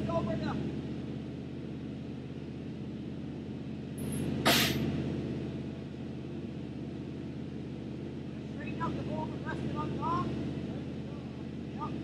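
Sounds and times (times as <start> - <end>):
truck engine running: 0.0 - 12.0
air hiss: 4.5 - 4.8.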